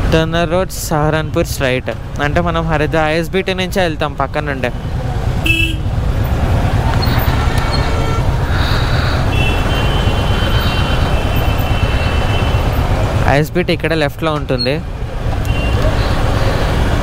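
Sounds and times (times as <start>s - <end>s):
low rumble of engines and road: 0.0s - 17.0s
vehicle horns honking: 5.4s - 5.9s, 7.0s - 13.0s, 15.5s - 16.3s.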